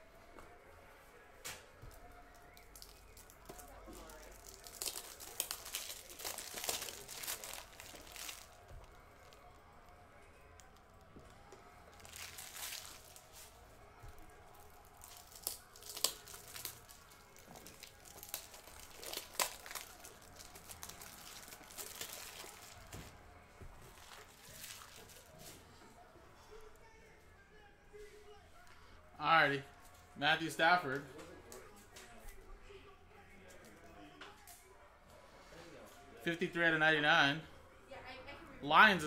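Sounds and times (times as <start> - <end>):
plastic packaging crinkling: 2.0 - 9.5, 11.9 - 13.6, 14.5 - 23.1, 23.8 - 25.4.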